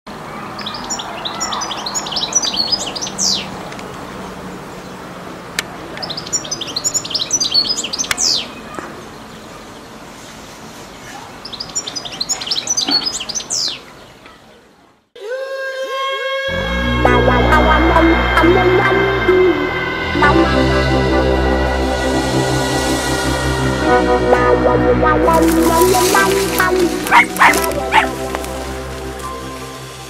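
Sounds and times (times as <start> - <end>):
finch twittering song: 0.6 - 3.6, 6.0 - 9.4, 11.4 - 14.4, 25.3 - 29.9.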